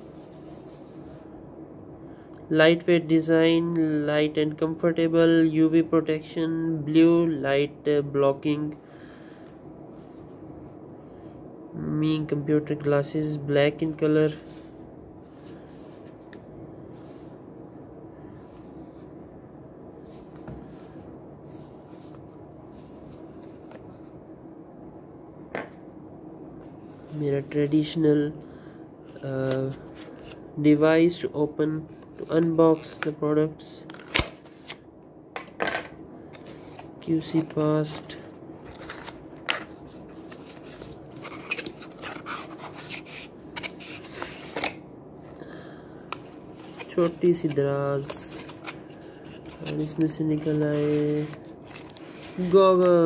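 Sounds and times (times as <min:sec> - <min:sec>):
cardboard rubbing and scraping: 0:40.2 - 0:44.6.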